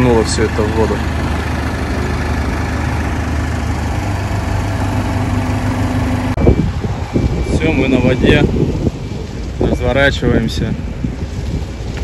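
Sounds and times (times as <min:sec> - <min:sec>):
tractor engine running: 0:00.0 - 0:12.0
wind on microphone: 0:06.0 - 0:12.0.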